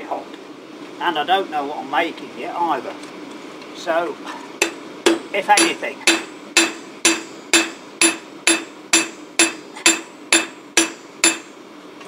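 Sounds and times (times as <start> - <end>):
hammer ringing on steel: 4.6 - 11.5.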